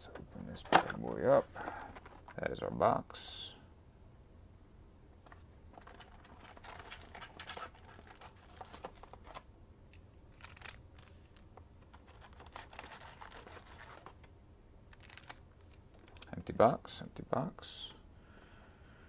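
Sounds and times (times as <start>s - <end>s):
foil packs crinkling: 5.8s - 9.4s, 10.3s - 11.4s, 12.0s - 14.2s, 15.0s - 16.3s.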